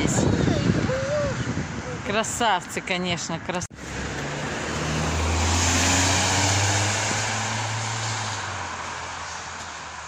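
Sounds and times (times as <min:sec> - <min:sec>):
car driving past: 0:03.8 - 0:09.2.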